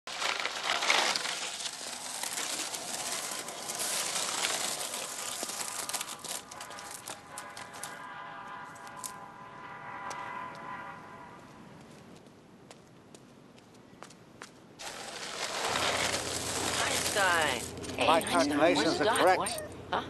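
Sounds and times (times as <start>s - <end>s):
skateboard wheels rolling on asphalt: 0.1s - 8.0s, 14.1s - 18.1s.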